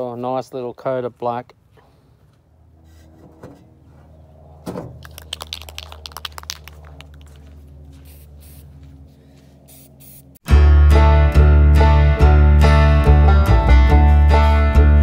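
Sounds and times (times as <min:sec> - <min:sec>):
steady low hum: 0:01.6 - 0:10.4
spray can ball rattling: 0:05.0 - 0:07.4.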